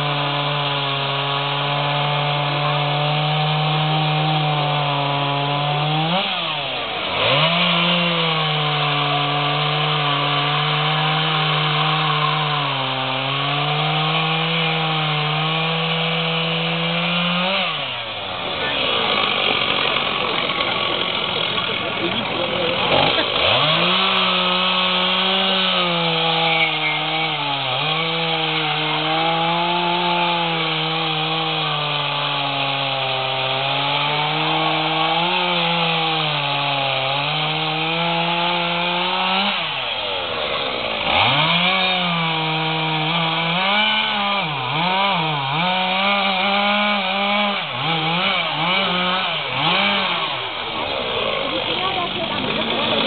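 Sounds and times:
chainsaw cutting wood: 0.0 - 53.0.

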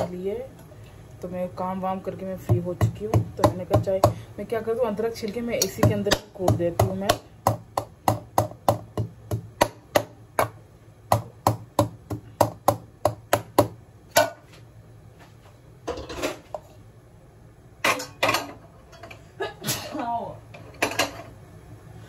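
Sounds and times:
pounding in a steel pot: 5.6 - 14.4.

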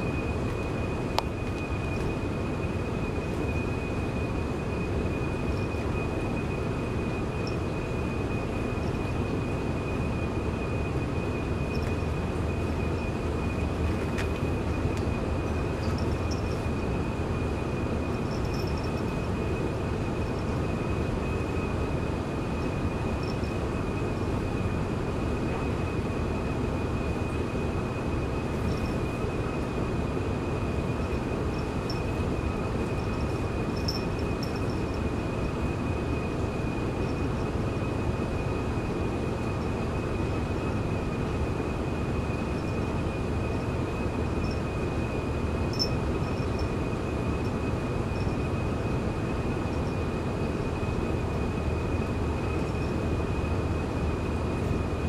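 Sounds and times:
thin high whine: 0.0 - 55.0.

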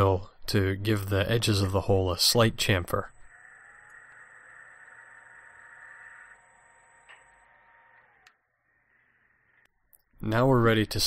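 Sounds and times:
lathe running with thin whine: 3.2 - 9.6.

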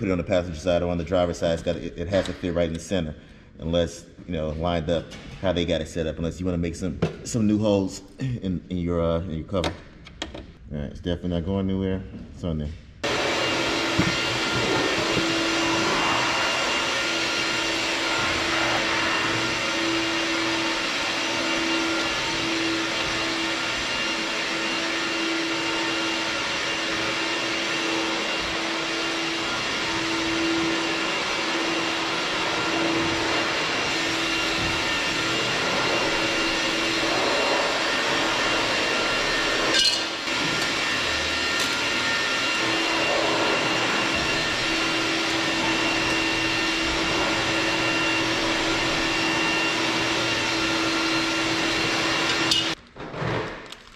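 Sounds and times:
machine whoosh and hum: 14.4 - 21.1.

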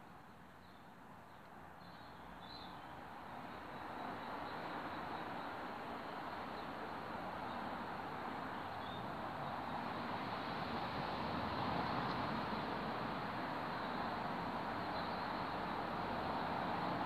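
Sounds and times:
outdoor background rush: 0.0 - 17.0.

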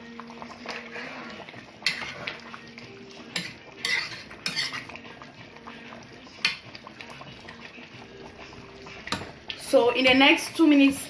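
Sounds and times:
metal utensil clinking on pot: 1.8 - 2.4, 3.3 - 5.0.

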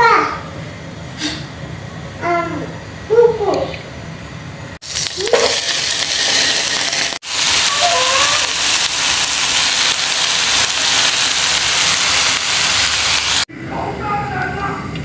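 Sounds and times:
spinach sizzling in hot oil: 4.8 - 13.5.

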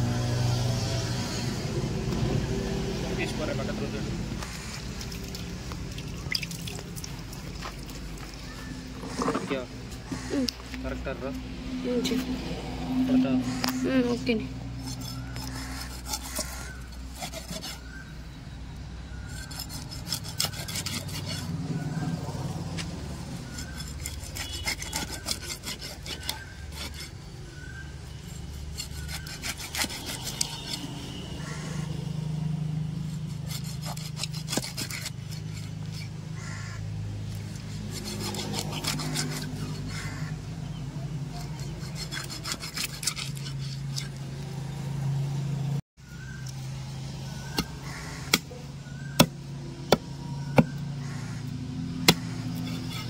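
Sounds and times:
knife sawing through fish: 14.8 - 18.1, 19.2 - 21.9, 23.2 - 31.9, 32.9 - 36.2, 37.4 - 40.3, 41.2 - 44.2, 52.1 - 53.0.

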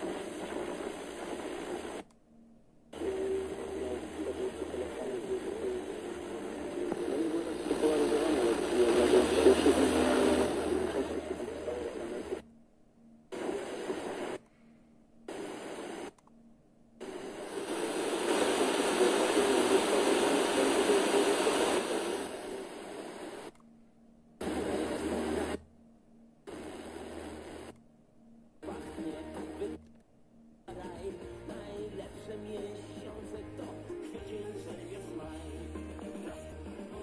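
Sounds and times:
radio static hiss: 0.0 - 2.1, 2.9 - 12.4, 13.3 - 14.4, 15.3 - 16.2, 17.0 - 23.6, 24.4 - 25.6, 26.5 - 27.8, 28.6 - 29.8
faint radio programme audio: 0.0 - 37.0.

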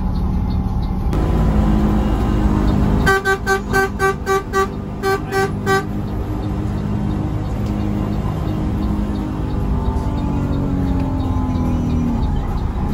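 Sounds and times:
bus running and road noise: 0.0 - 12.9
horn short toots: 2.0 - 6.1.

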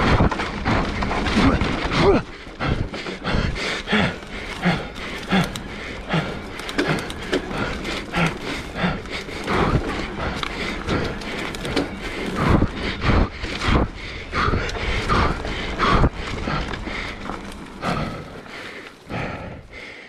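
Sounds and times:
bike frame clicking and rattling: 0.0 - 19.3
wheels knocking over bumps: 0.0 - 19.8.

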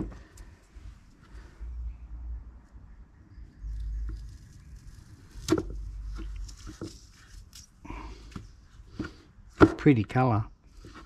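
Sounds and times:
clicks and rustling of wire: 3.7 - 8.4.

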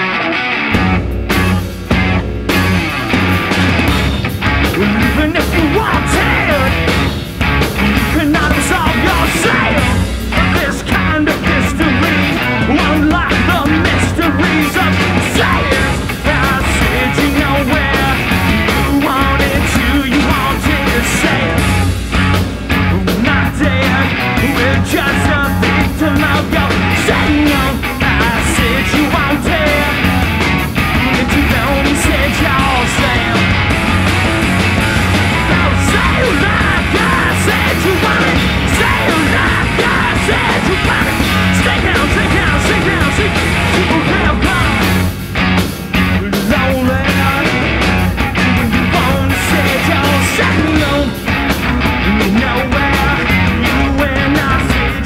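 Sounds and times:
punk rock band playing: 0.0 - 55.0
singer yelling into microphone: 4.8 - 6.9, 8.0 - 21.6, 35.3 - 45.0.

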